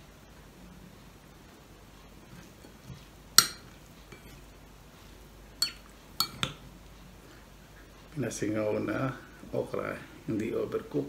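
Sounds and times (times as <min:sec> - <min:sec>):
metal spoon clinking dishes: 0:03.4 - 0:04.4, 0:05.6 - 0:06.6.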